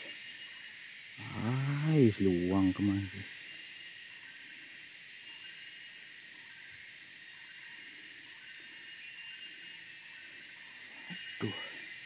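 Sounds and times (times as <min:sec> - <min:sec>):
stream running water: 0:00.0 - 0:08.9.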